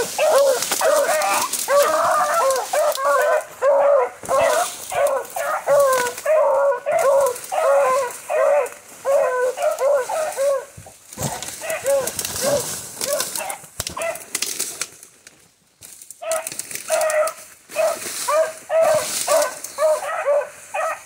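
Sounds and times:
hounds yelping: 0.0 - 14.3, 16.2 - 21.0.

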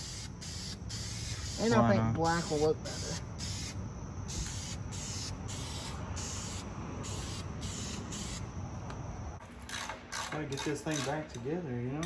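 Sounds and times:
spray paint can hissing: 0.0 - 1.7, 2.3 - 8.5.

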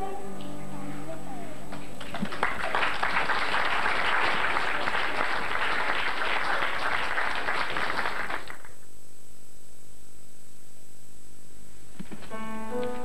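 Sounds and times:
audience applause: 2.0 - 8.8.

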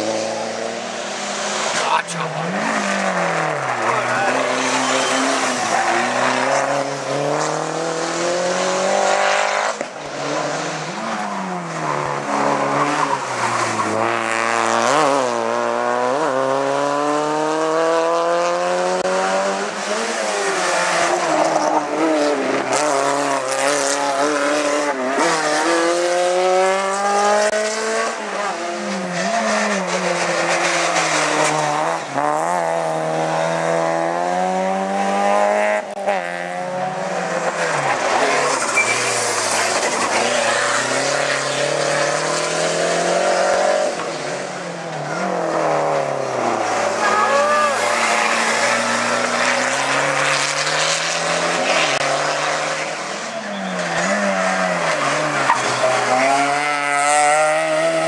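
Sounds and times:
race car engines revving: 0.0 - 58.0
tyre squeal: 3.7 - 6.2, 38.5 - 42.1, 47.0 - 49.9, 53.2 - 55.9.

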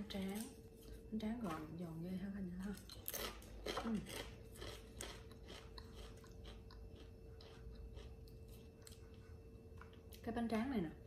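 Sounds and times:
crunchy chewing of rice cracker: 2.8 - 10.2.

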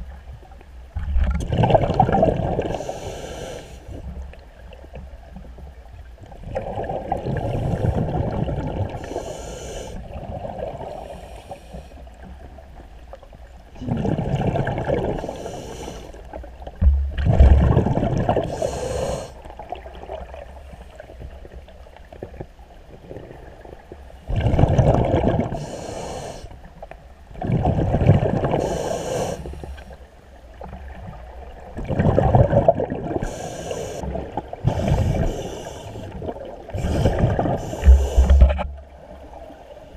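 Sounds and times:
exhaled bubbles underwater: 1.0 - 3.0, 6.2 - 11.4, 13.7 - 20.6, 22.3 - 26.1, 27.3 - 29.8, 30.5 - 39.8
regulator air hiss: 2.7 - 4.0, 9.0 - 10.0, 11.0 - 12.0, 15.2 - 16.2, 18.5 - 19.4, 25.6 - 26.6, 28.6 - 30.0, 33.2 - 34.1, 34.7 - 38.4.

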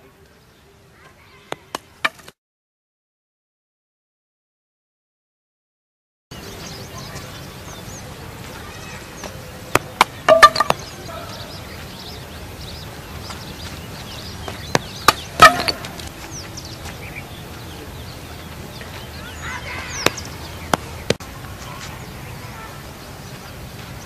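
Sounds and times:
cricket ball hitting wooden stumps: 1.5 - 2.4, 9.7 - 11.0, 14.4 - 16.1, 20.0 - 21.2
birds chirping: 6.3 - 24.0.

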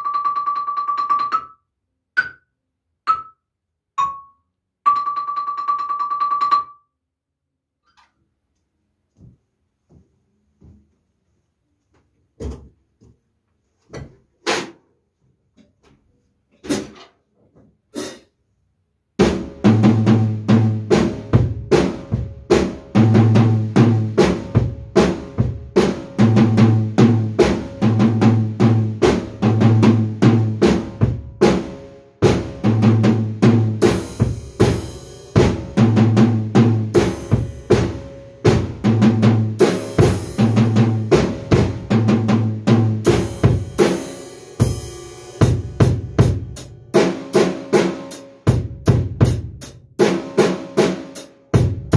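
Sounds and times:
drum kit rock beat: 17.9 - 18.3, 19.2 - 51.9.

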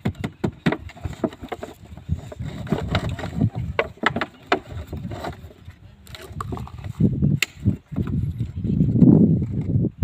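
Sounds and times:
plastic bottle crinkling and knocking: 0.0 - 7.0.

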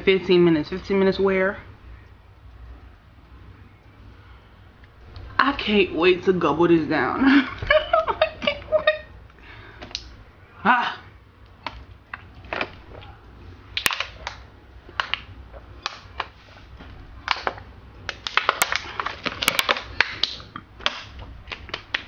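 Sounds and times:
plastic bottle crackling: 11.6 - 13.0, 13.7 - 22.0
person gulping water: 15.2 - 16.0, 18.8 - 21.8.

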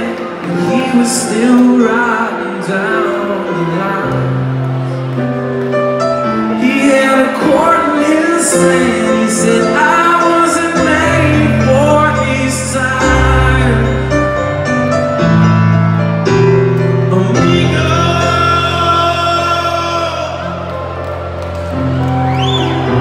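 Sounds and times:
person singing: 0.0 - 5.4, 6.3 - 14.9, 16.8 - 21.3
grand piano chords: 0.0 - 23.0.

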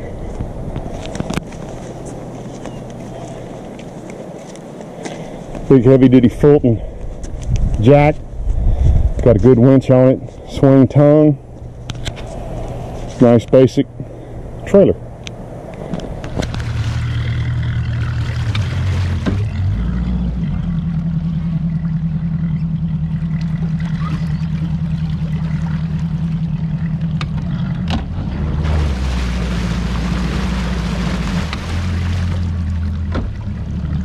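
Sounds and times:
outboard motor idling: 15.8 - 34.0.

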